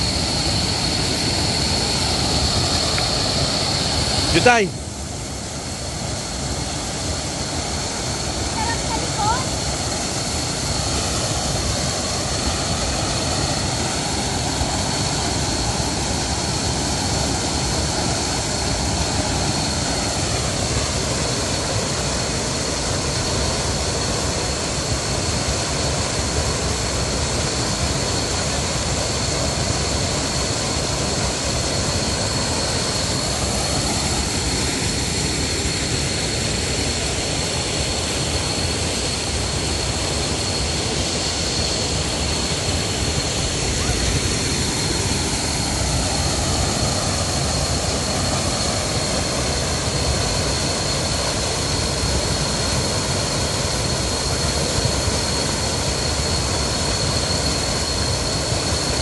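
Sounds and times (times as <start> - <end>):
rush of falling water: 0.0 - 59.0
thin high tone: 41.2 - 49.5.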